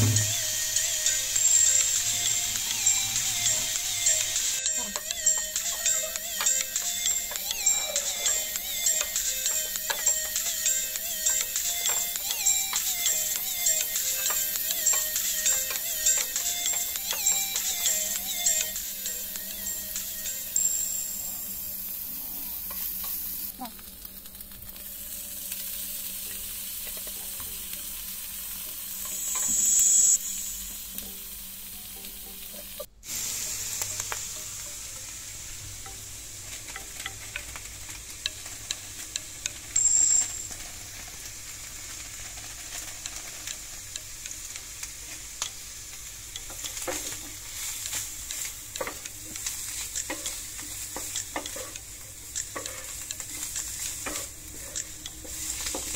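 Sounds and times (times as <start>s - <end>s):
food sizzling in oil: 0.0s - 55.9s
wooden spatula scraping a pan: 46.6s - 55.9s.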